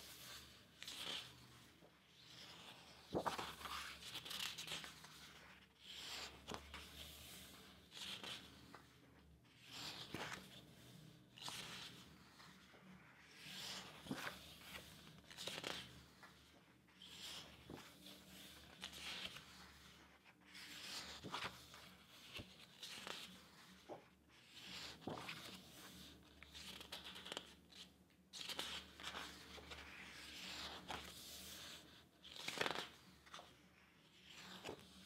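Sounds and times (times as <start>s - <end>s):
book pages turning: 0.0s - 9.0s, 9.6s - 35.0s
paper rustling: 2.3s - 6.9s, 11.4s - 16.4s, 24.7s - 27.5s, 28.4s - 33.4s.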